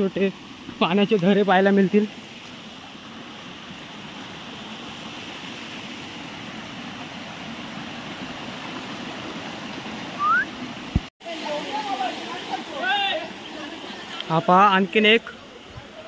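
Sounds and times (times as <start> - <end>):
stream running over rocks: 0.0 - 16.0
short rising chirp: 10.2 - 10.5.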